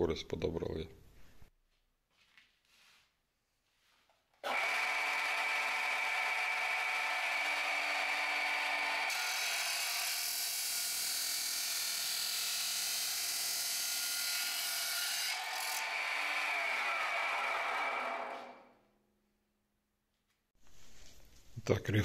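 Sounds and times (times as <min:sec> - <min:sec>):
cut-off saw motor whining: 0:04.4 - 0:18.7.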